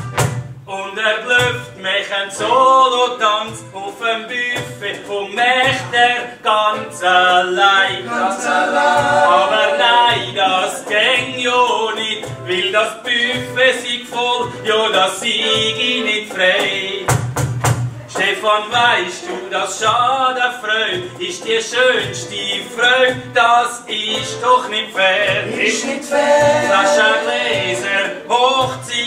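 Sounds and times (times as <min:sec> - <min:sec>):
group of voices singing: 0:05.6 - 0:12.1, 0:18.0 - 0:21.2, 0:24.9 - 0:29.0.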